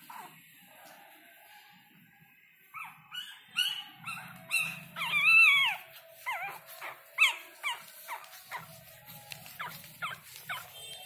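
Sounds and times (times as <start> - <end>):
puppy wavering cry: 2.8 - 10.8
puppies squealing: 2.8 - 10.9.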